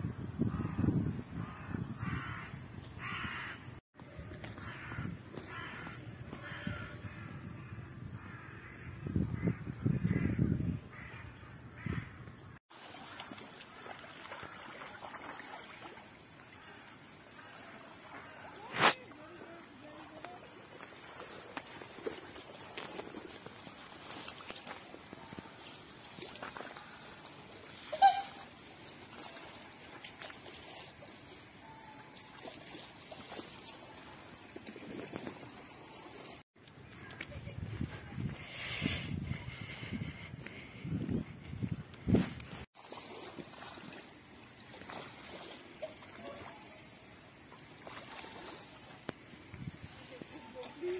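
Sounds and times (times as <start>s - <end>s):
waterfowl call: 1.4s - 3.7s, 14.3s - 19.6s, 24.1s - 34.3s
trickling water: 12.7s - 36.9s, 42.7s - 50.9s.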